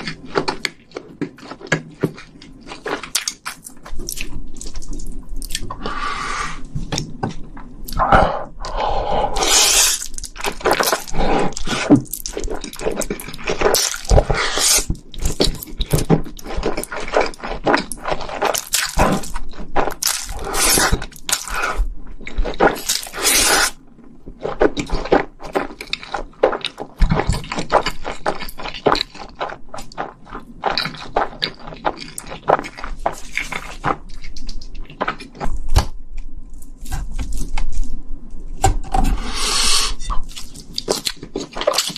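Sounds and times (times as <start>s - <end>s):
slurping noodles: 7.9s - 10.1s, 13.8s - 14.9s, 20.3s - 21.8s, 23.0s - 23.8s.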